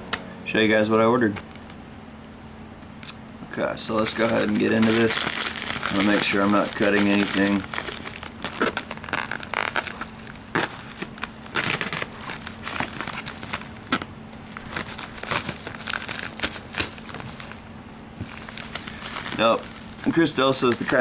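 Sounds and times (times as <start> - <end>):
plastic mailer crinkling: 3.8 - 21.0.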